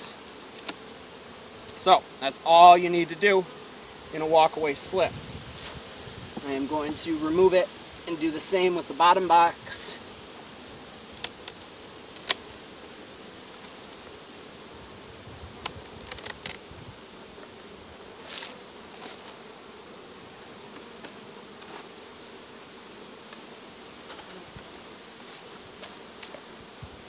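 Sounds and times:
bees buzzing: 0.0s - 27.0s
wooden hive box knocks and scrapes: 15.4s - 19.5s, 23.2s - 27.0s.

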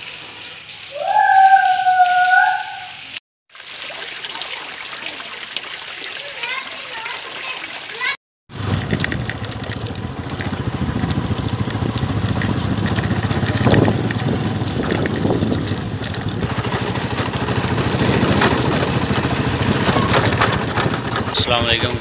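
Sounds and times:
motorcycle engine running: 8.5s - 22.0s.

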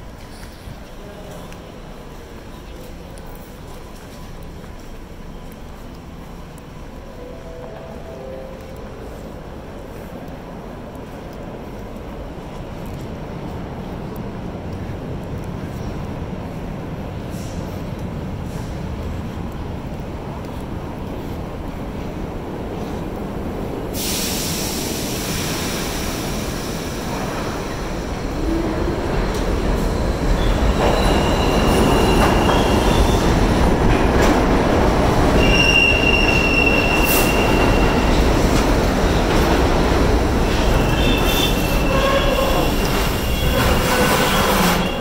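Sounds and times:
train wheels rumbling on rails: 0.0s - 45.0s
train brakes squealing: 30.0s - 33.5s, 35.3s - 38.4s, 40.5s - 45.0s.

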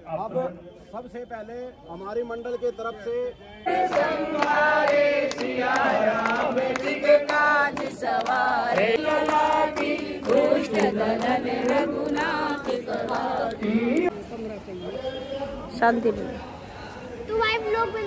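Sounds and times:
group singing a hymn: 3.6s - 14.1s
people clapping along: 3.7s - 14.1s.

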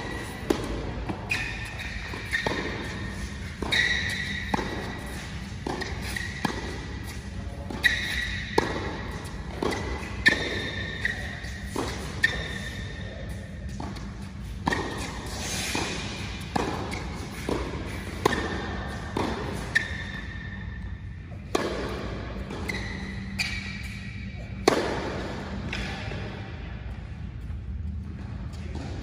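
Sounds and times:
tennis ball hit by rackets: 0.0s - 12.8s, 13.7s - 20.2s, 21.5s - 22.8s, 24.6s - 25.9s
steady low hum: 0.0s - 29.0s.

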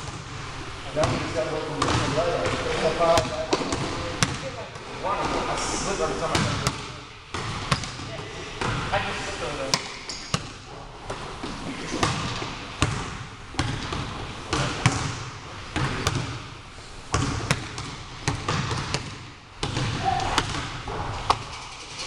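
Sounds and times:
basketball bouncing on hardwood floor: 1.0s - 4.4s, 6.4s - 8.8s, 11.1s - 16.4s, 17.1s - 21.5s.

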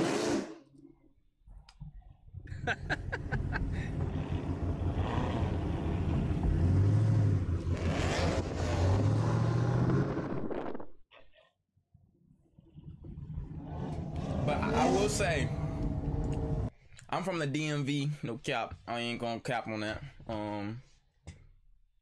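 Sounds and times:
car engine: 2.6s - 10.6s, 12.8s - 16.7s
road noise: 3.0s - 10.5s, 13.4s - 16.7s.

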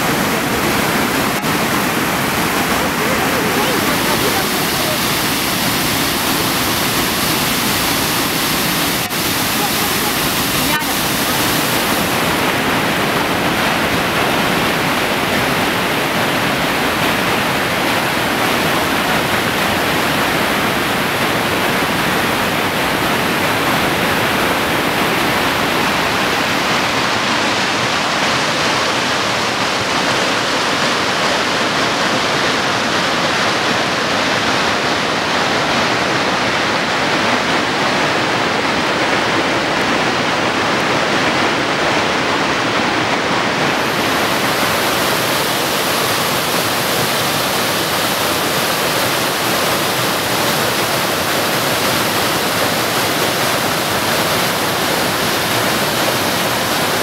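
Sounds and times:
waterfall rushing: 0.0s - 57.0s.

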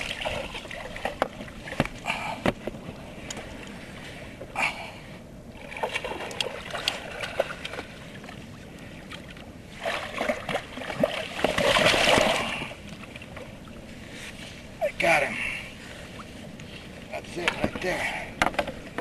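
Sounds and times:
water splashing: 0.0s - 2.4s, 5.6s - 8.4s, 9.0s - 13.8s.

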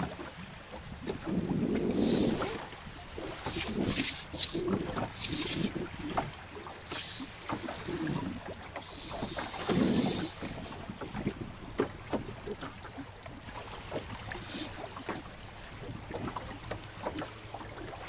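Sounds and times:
water lapping and splashing: 0.0s - 18.0s
wind gusting on microphone: 1.0s - 2.7s.

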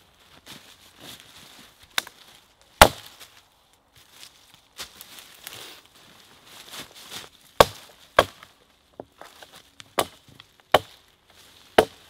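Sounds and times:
hatchet chopping log: 2.8s - 3.1s, 7.6s - 9.1s, 9.9s - 11.0s, 11.8s - 12.0s.

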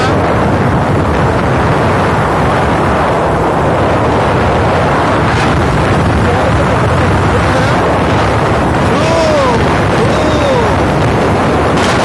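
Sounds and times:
low engine drone: 0.0s - 12.0s
road noise: 0.0s - 12.0s
wind rushing over microphone: 0.0s - 12.0s.

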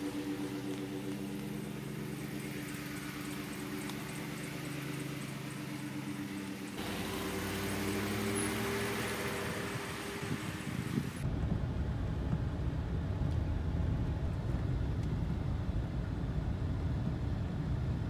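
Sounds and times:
pickup truck engine running: 0.0s - 13.3s.

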